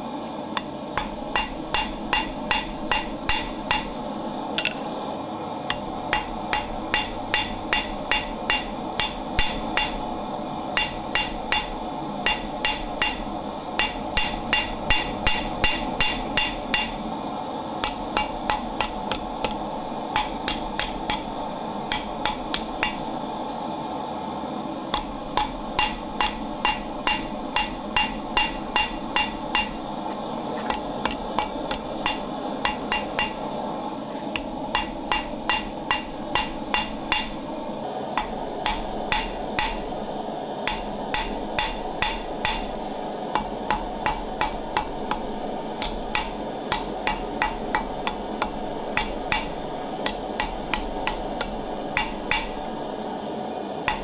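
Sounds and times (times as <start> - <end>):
steady background noise: 0.0 - 54.0
hammer on anvil ringing: 1.0 - 4.0, 5.7 - 10.1, 10.8 - 17.1, 17.8 - 19.6, 20.2 - 21.3, 21.9 - 23.1, 24.9 - 29.9, 30.7 - 33.4, 34.4 - 37.5, 38.2 - 39.9, 40.6 - 42.8, 43.4 - 52.7.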